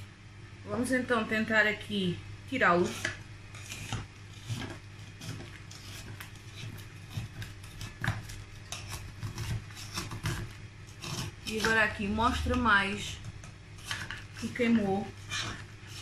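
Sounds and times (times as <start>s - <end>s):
knife scraping metal cake tin: 2.6s - 16.0s.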